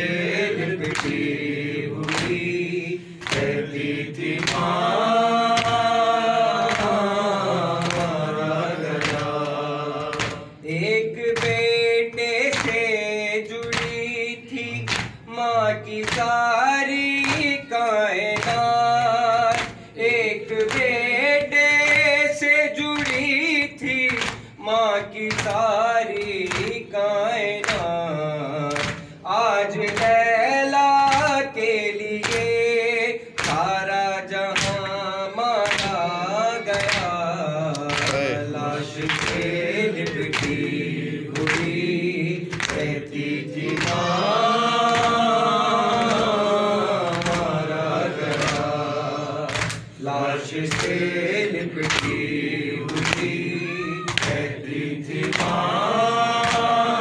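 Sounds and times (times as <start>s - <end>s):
voices singing along: 0.0s - 57.0s
man singing into a microphone: 4.8s - 40.3s.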